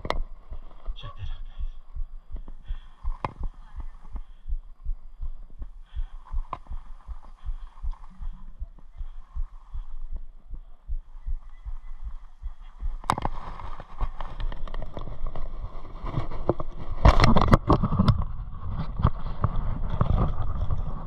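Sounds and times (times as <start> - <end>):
clothing rustling against camera: 11.7 - 21.0.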